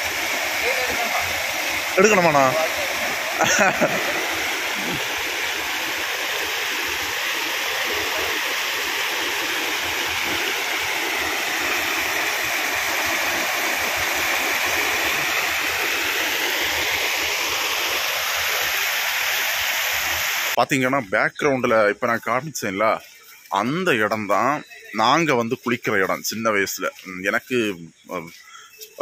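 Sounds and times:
stream water rushing: 0.0s - 20.6s.

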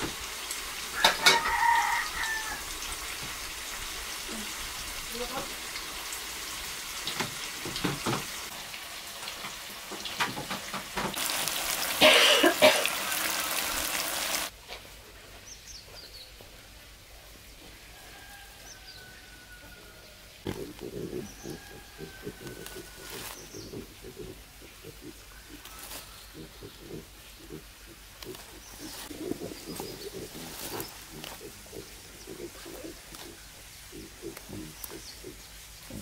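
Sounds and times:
tofu sizzling in oil: 0.0s - 14.5s.

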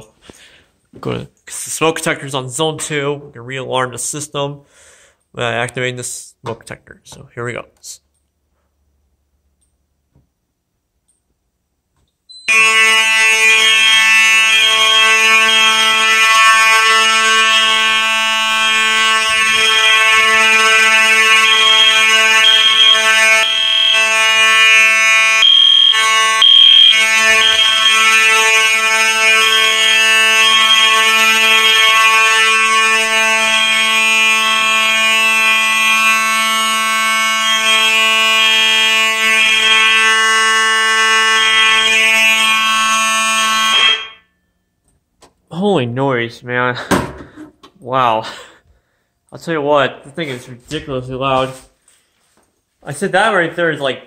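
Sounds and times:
fire alarm horns: 0.0s - 0.6s, 12.3s - 44.8s.

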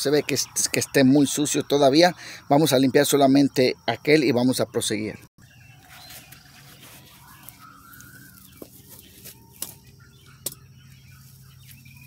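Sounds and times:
bird calling faintly: 5.8s - 12.0s.

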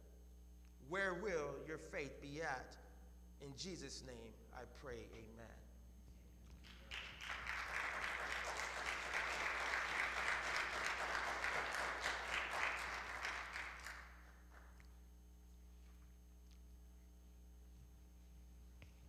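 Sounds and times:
crowd applauding: 6.6s - 14.8s.

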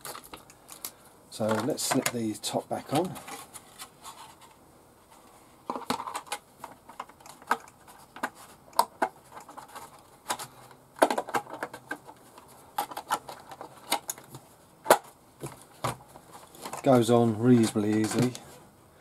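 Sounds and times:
plastic shell clicking and rattling: 5.7s - 12.2s, 12.8s - 17.0s.

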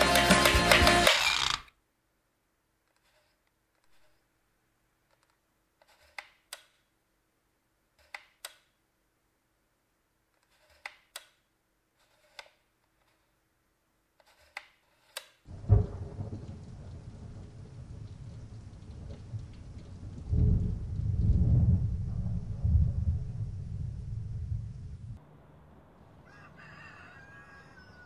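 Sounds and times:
thunder rumble: 15.5s - 26.2s
steady rain: 15.5s - 26.4s.

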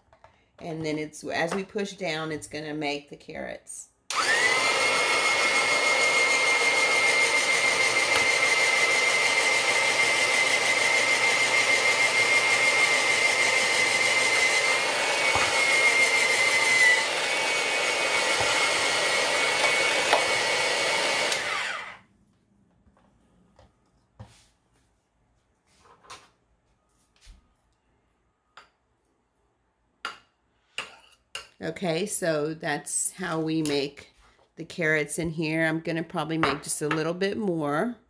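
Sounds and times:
shredder motor whining: 4.1s - 22.0s.

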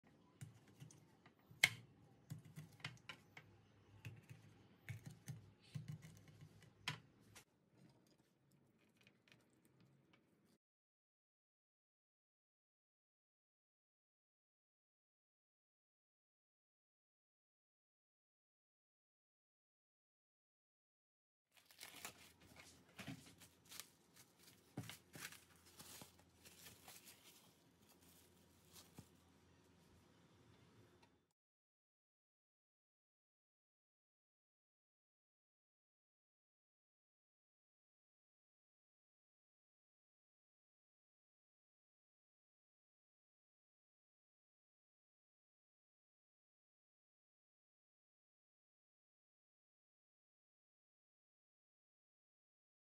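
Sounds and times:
cling film crinkling: 21.6s - 29.1s.

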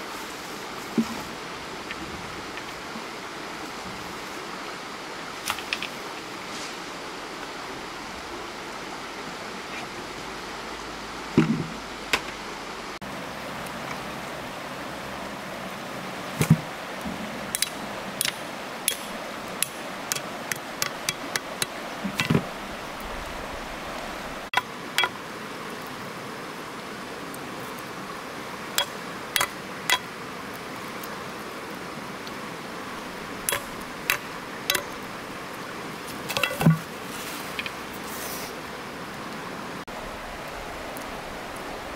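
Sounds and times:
running water rushing: 0.0s - 41.9s
sharp knocks and clicks: 33.5s - 34.9s.

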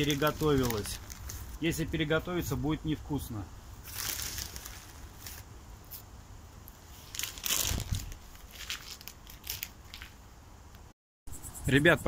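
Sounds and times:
plastic packet crinkling: 0.0s - 1.6s, 3.8s - 5.4s, 7.0s - 10.2s.

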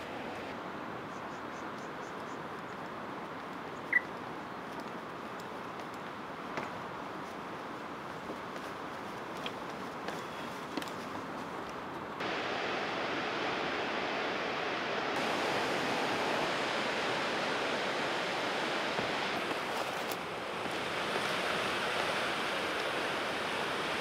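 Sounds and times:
ocean surf: 0.0s - 1.0s, 12.2s - 24.0s.

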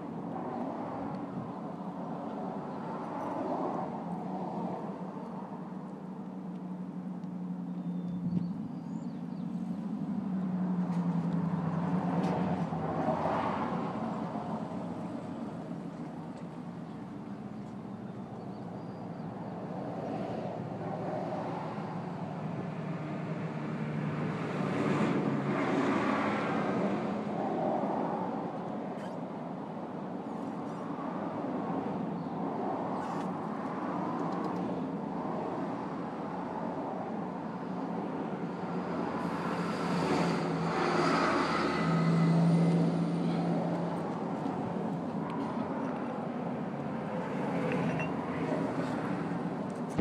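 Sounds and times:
passing traffic engine hum: 0.0s - 50.0s
vehicle driving past: 38.7s - 44.0s.

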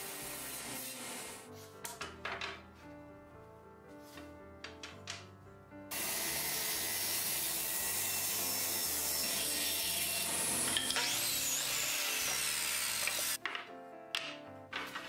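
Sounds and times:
miter saw crosscutting: 5.9s - 13.4s
table saw ripping board: 5.9s - 13.6s, 14.7s - 15.0s.

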